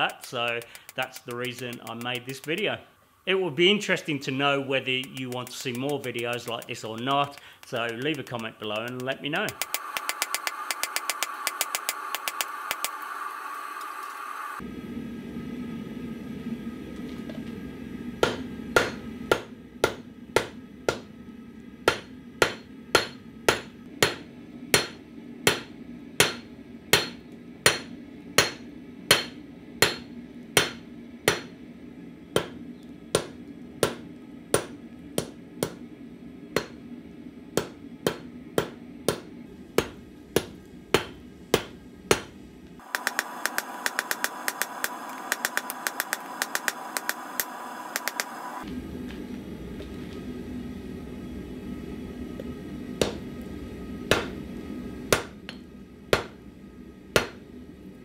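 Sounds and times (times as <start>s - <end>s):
hammer striking metal on anvil: 18.2s - 21.1s, 21.8s - 31.6s, 32.4s - 32.6s, 33.2s - 35.8s, 37.6s - 42.3s, 54.1s - 54.4s, 55.1s - 56.4s, 57.2s - 57.4s.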